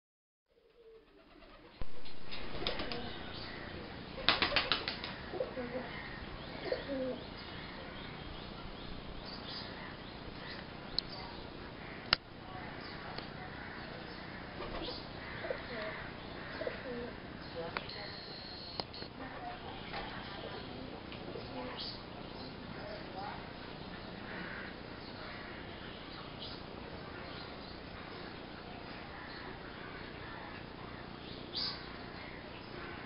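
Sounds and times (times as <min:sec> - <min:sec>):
pigeons cooing: 0:00.6 - 0:07.8, 0:13.6 - 0:17.4
pigeon wingbeats: 0:00.9 - 0:03.3, 0:04.2 - 0:05.3.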